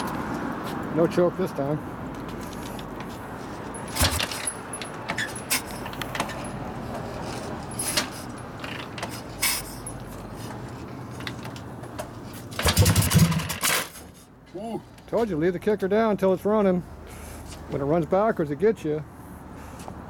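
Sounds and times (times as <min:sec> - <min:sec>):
kick lever clicks and clanks: 0:03.9 - 0:06.5, 0:11.2 - 0:14.1
motorcycle engine firing thumps: 0:12.5 - 0:14.0.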